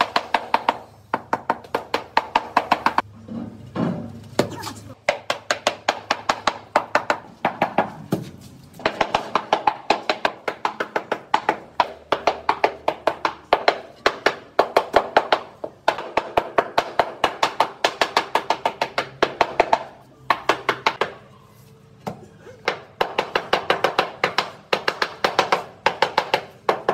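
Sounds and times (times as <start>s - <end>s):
rubber mallet tapping floor tiles: 5.0s - 8.2s, 8.8s - 21.1s, 22.6s - 26.9s.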